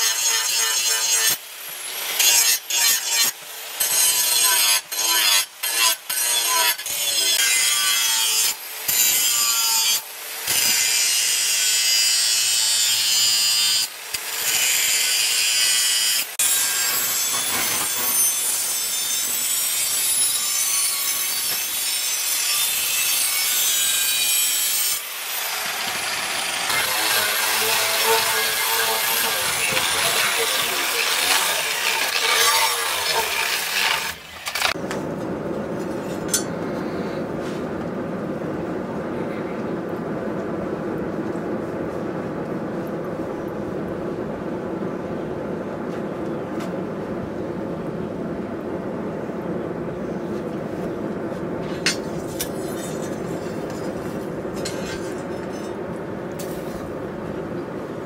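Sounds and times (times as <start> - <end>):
angle grinder grinding steel: 0.0 - 34.8.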